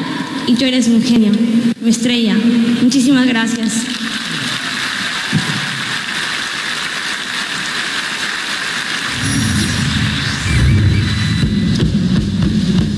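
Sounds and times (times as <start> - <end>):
audience applauding: 3.9 - 12.5
low rumble: 9.1 - 12.7.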